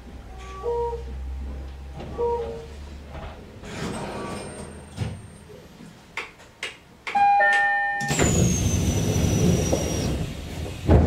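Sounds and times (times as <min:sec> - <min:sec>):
sliding train doors shutting: 0:01.4 - 0:05.3, 0:08.0 - 0:11.0
two-note door chime: 0:07.2 - 0:08.3.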